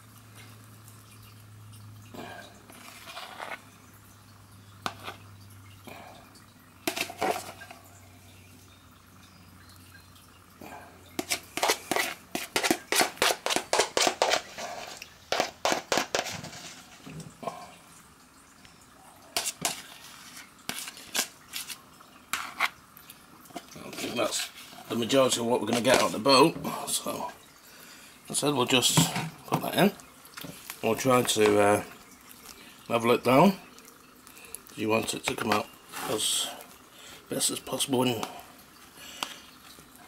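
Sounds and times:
utensil knocking and scraping bowl: 4.8s - 5.2s, 6.9s - 7.7s, 11.2s - 17.0s, 19.4s - 22.7s.

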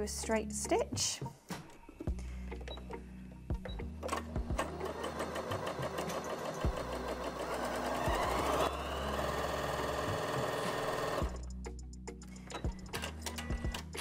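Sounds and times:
sewing machine stitching: 4.1s - 11.4s.

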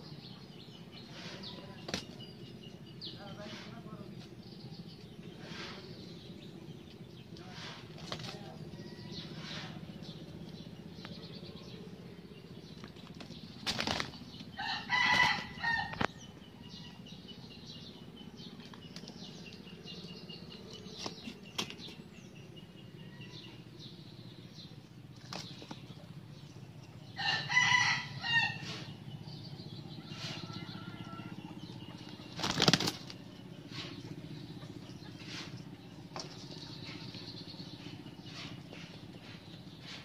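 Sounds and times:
wing flapping: 12.8s - 16.1s, 32.2s - 34.0s.

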